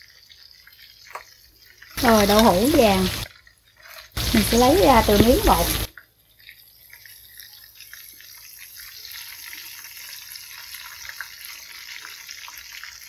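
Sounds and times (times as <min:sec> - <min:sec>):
oil sizzling in a frying pan: 0:00.0 - 0:13.0.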